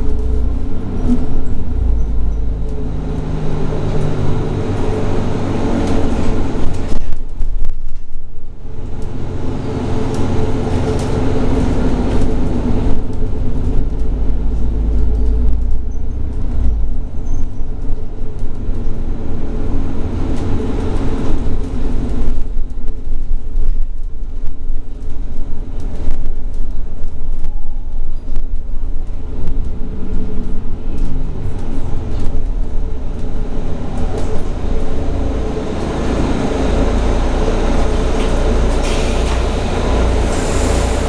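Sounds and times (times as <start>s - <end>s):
bus interior low rumble: 0.0s - 41.0s
rattles and clicks: 0.0s - 41.0s.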